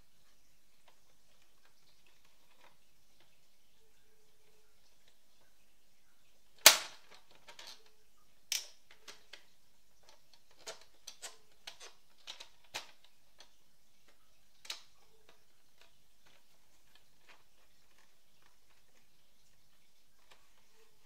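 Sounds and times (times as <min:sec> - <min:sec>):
plastic snaps: 0:06.6 - 0:07.9, 0:08.5 - 0:19.0.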